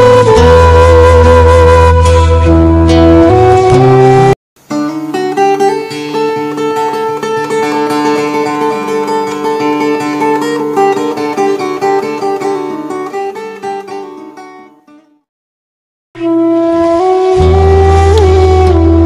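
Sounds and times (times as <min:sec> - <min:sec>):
plucked string melody: 0:00.0 - 0:15.2, 0:16.2 - 0:19.0.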